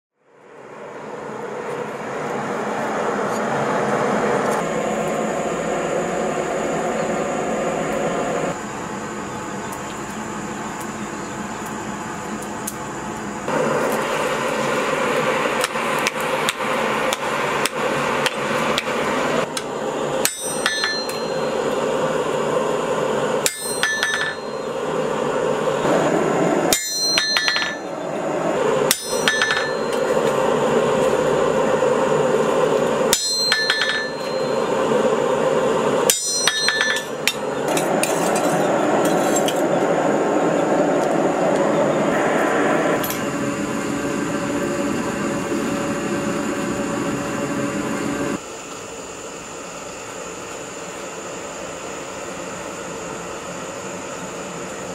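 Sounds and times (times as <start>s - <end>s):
steady rushing noise: 0.2s - 9.2s, 13.0s - 48.4s
hammer striking steel on anvil: 20.2s - 21.8s, 23.4s - 24.7s, 26.7s - 28.0s, 28.9s - 30.3s, 33.1s - 34.7s, 36.1s - 39.6s.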